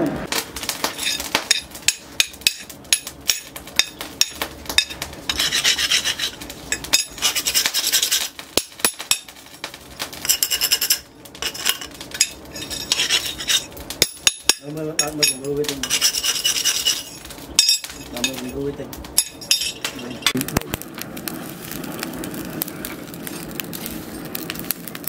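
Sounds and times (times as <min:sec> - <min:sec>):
steel scraper rasping on metal: 0:05.3 - 0:08.3, 0:12.6 - 0:13.7, 0:15.8 - 0:17.2.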